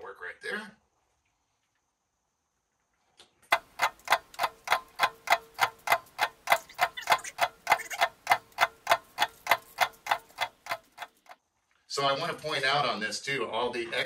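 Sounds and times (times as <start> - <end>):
clock ticking: 3.5 - 11.4.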